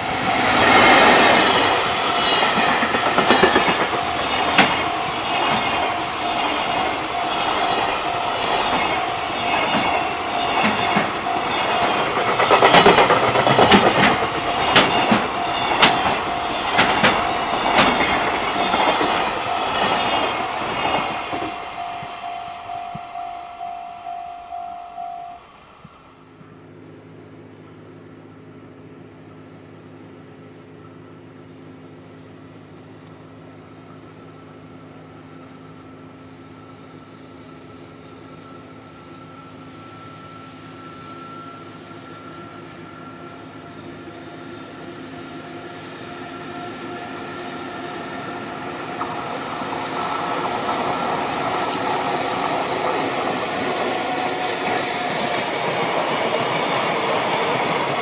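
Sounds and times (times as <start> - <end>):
train wheels clacking over rail joints: 0.3 - 22.2
steady ringing tone: 1.4 - 26.4, 35.7 - 43.9.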